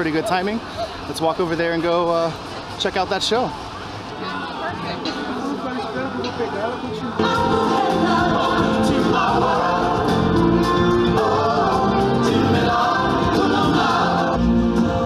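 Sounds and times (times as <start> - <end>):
voices: 0.0 - 14.4
backing music: 7.1 - 15.0.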